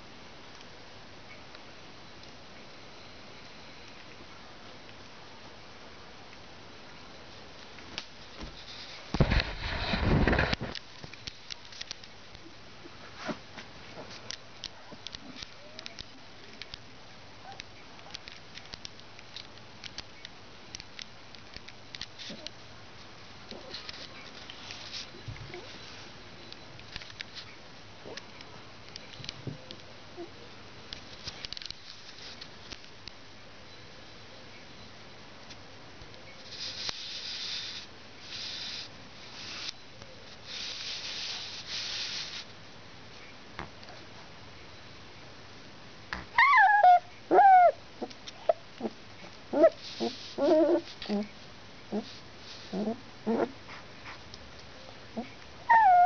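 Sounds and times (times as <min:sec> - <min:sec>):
steady low hiss: 0:00.0 - 0:55.7
soft rustling on fleece blanket: 0:08.3 - 0:10.7, 0:23.0 - 0:26.2, 0:36.4 - 0:42.6, 0:49.2 - 0:54.3.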